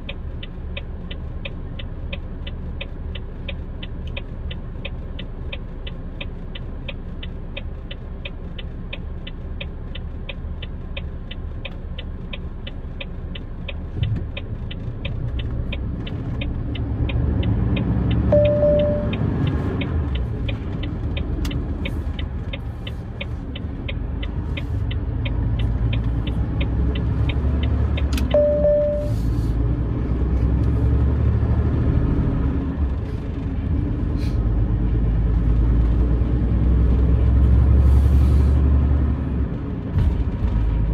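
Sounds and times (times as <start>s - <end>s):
turn indicator ticking: 0.0s - 37.8s
truck diesel engine: 0.0s - 40.9s
short dashboard beep: 18.3s - 19.2s, 28.2s - 29.3s.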